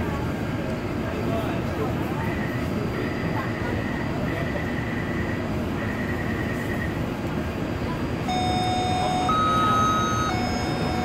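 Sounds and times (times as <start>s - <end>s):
train car hum: 0.0s - 11.0s
two-tone door warning chime: 8.3s - 11.0s.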